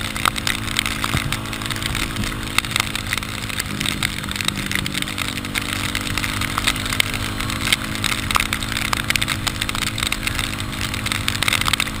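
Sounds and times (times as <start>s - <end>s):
motorcycle engine running steadily: 0.0s - 12.0s
sharp ticks and crackles: 0.0s - 12.0s.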